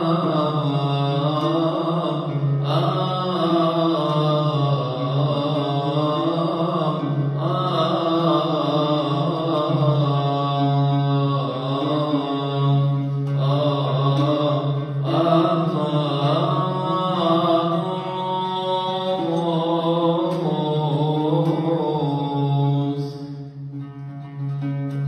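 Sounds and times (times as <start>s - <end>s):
man chanting a hymn: 0.0s - 23.4s
oud playing: 0.0s - 25.0s.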